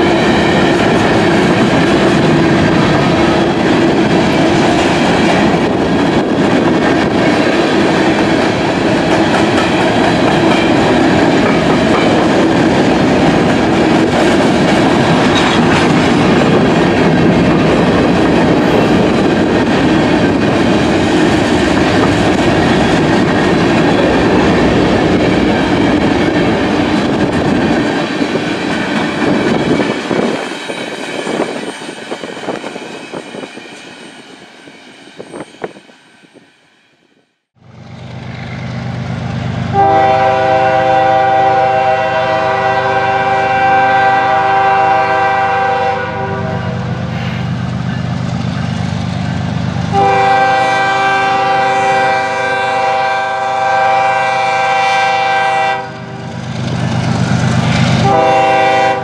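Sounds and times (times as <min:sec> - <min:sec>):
train wheels clacking: 0:00.0 - 0:34.4
diesel locomotive engine rumbling: 0:00.0 - 0:35.9, 0:37.6 - 0:59.0
train horn blasts: 0:39.7 - 0:47.1, 0:49.9 - 0:56.4, 0:57.6 - 0:59.0.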